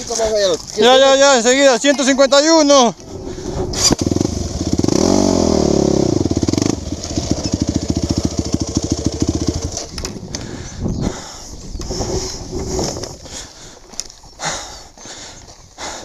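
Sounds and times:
quad bike engine revving: 3.1s - 10.2s.

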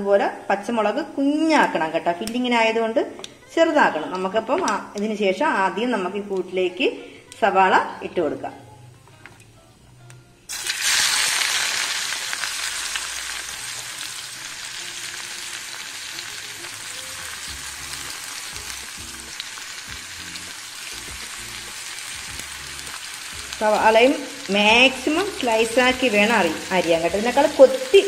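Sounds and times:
onions sizzling in hot oil: 10.5s - 28.0s.

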